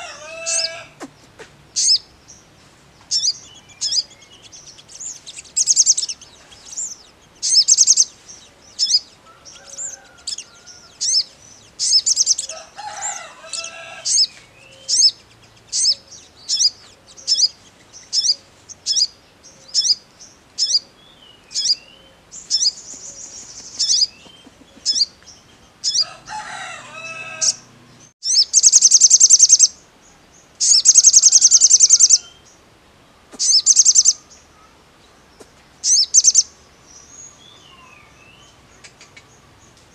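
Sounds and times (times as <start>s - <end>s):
sunbird singing: 0.0s - 32.7s, 33.4s - 39.9s
buzzy bird trills: 3.1s - 20.0s, 22.4s - 25.1s, 26.8s - 29.7s, 30.6s - 32.4s, 33.4s - 34.2s, 35.8s - 36.4s.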